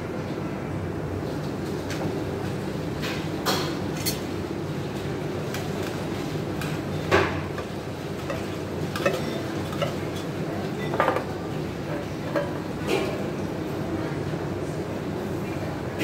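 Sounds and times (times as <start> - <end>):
kitchen items clattering: 7.5 - 13.2.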